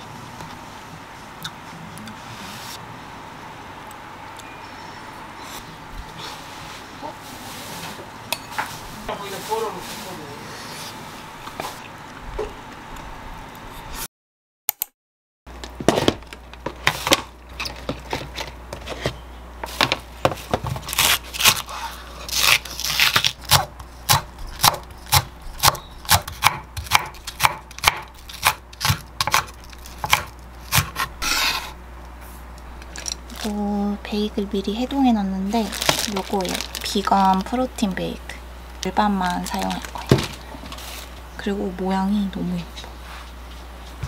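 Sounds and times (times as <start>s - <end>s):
knife chopping on wooden board: 23.5s - 31.7s.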